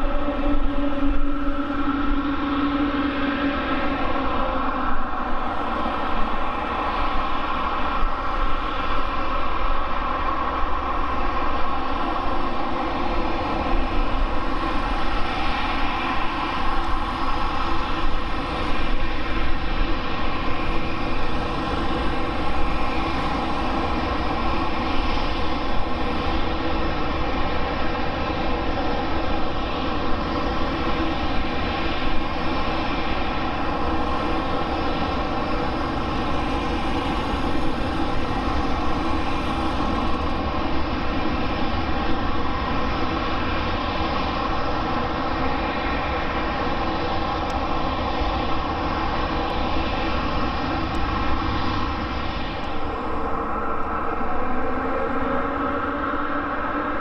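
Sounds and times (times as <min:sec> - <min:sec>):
jet engines whining: 0:13.4 - 0:57.0.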